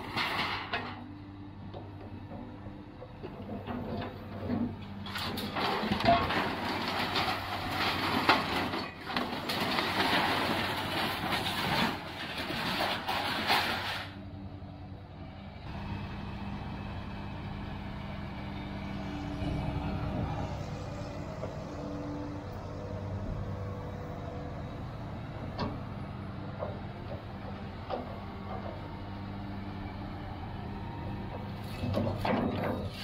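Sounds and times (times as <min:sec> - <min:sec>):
scrap steel scraping and clanking: 0:00.0 - 0:01.1, 0:03.2 - 0:14.2, 0:31.3 - 0:33.0
diesel engine running: 0:00.0 - 0:33.0.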